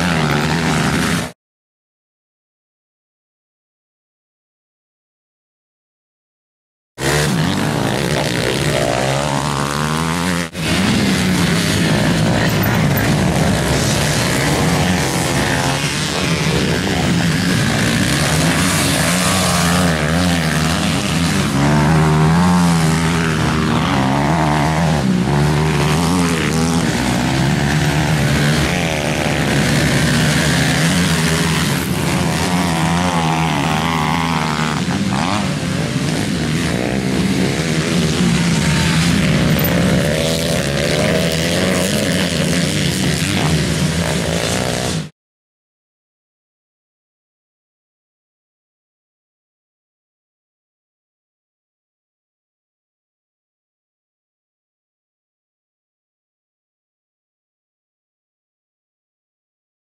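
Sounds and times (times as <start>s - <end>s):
dirt bike engines revving: 0.0s - 1.4s, 7.0s - 45.1s.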